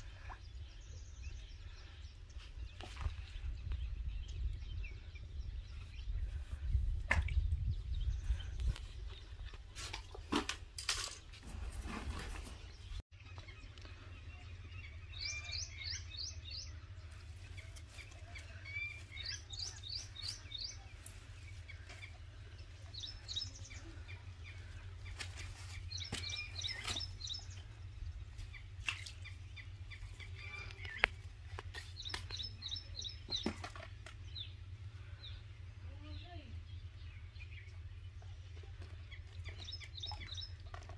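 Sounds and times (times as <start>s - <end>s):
bird chirping: 12.6s - 40.8s
low steady rumble: 12.6s - 40.9s.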